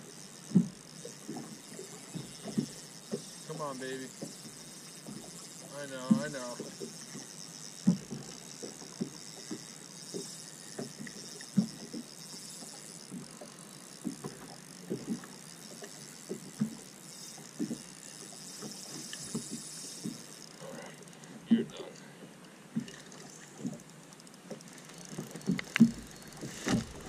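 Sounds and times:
small waves slapping a boat hull: 0:00.0 - 0:20.3, 0:22.2 - 0:27.0.

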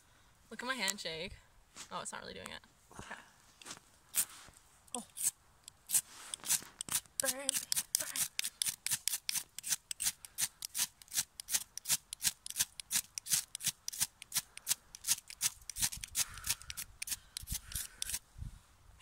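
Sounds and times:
ferro rod scraped with striker: 0:04.9 - 0:18.2.

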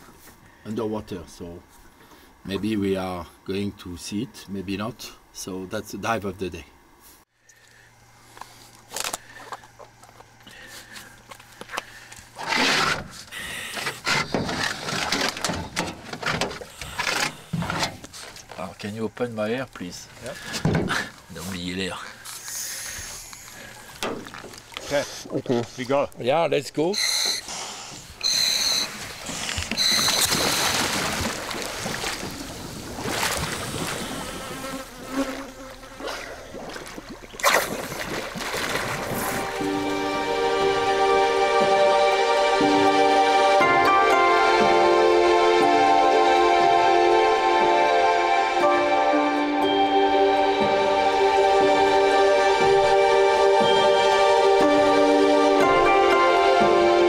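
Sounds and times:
water splashing and churning: 0:23.4 - 0:25.8, 0:28.0 - 0:42.2
high buzzing whine: 0:28.2 - 0:35.7.

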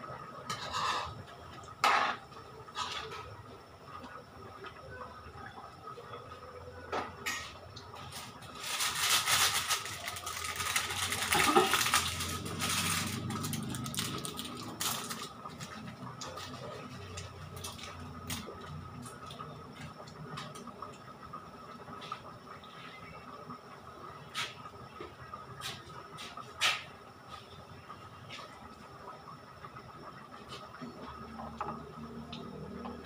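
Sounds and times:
faint steady whine: 0:00.0 - 0:33.0
clatter of pots and dishes: 0:00.4 - 0:03.3, 0:06.9 - 0:08.3, 0:10.5 - 0:13.0.

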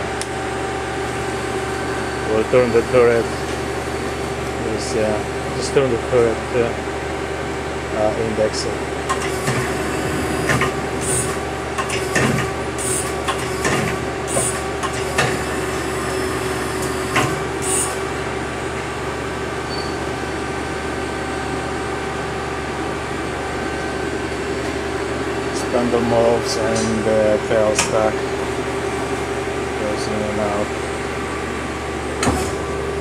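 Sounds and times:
hydraulic hum: 0:00.0 - 0:33.0
lathe turret clunks and hisses: 0:09.1 - 0:16.0, 0:16.7 - 0:18.0, 0:32.2 - 0:32.8.

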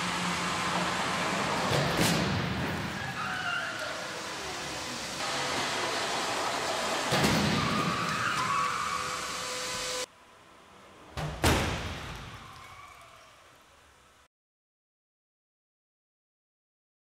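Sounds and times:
car crash impact: 0:01.6 - 0:03.0, 0:11.2 - 0:12.4
dragged tyres squealing: 0:02.5 - 0:10.1.

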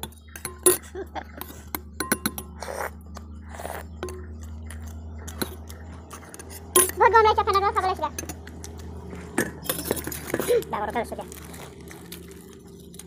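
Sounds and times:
spoon clicking on steel bowls: 0:00.0 - 0:03.4, 0:04.0 - 0:10.5
people chewing: 0:00.0 - 0:07.2, 0:08.2 - 0:13.0
steady low hum: 0:00.0 - 0:13.0.

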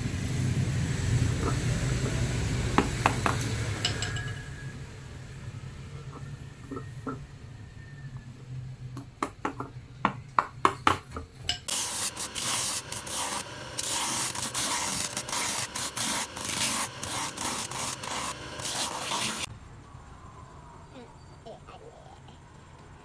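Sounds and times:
sanding wheel grinding: 0:11.7 - 0:19.5.

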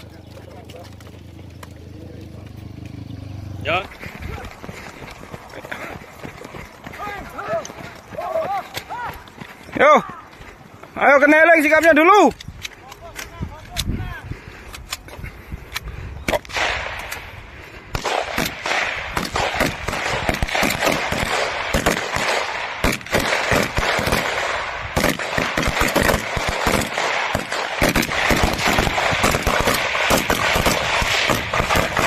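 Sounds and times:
rifles and machine gun firing: 0:17.9 - 0:32.0.

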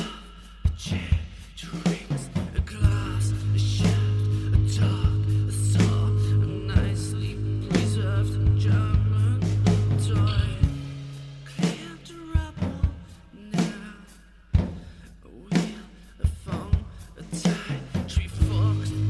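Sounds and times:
low bass notes: 0:02.8 - 0:11.5, 0:18.4 - 0:19.0
band playing: 0:02.8 - 0:11.8.

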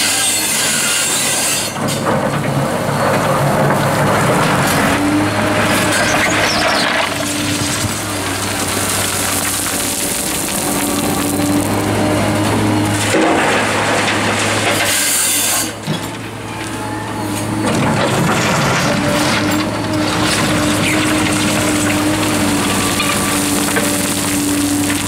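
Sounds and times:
bucket scraping and digging gravel: 0:00.5 - 0:16.1, 0:17.7 - 0:25.0
excavator diesel engine humming: 0:01.7 - 0:25.0
gravel pouring into steel truck body: 0:05.7 - 0:15.8, 0:18.3 - 0:25.0.

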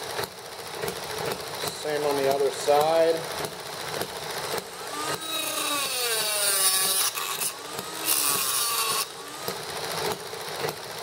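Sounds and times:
rotary tool grinding metal pipe: 0:03.9 - 0:10.8.

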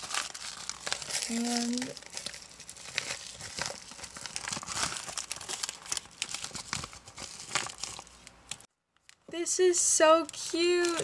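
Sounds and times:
cellophane crinkling: 0:00.0 - 0:11.0.

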